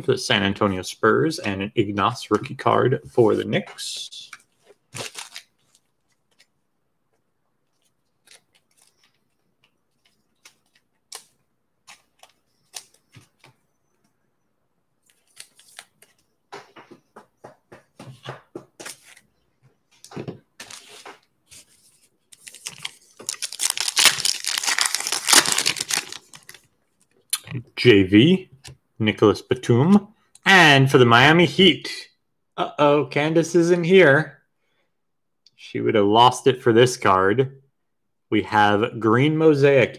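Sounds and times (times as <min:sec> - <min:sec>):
card pack wrapper crinkling open: 0:04.9 - 0:06.5, 0:22.3 - 0:26.7.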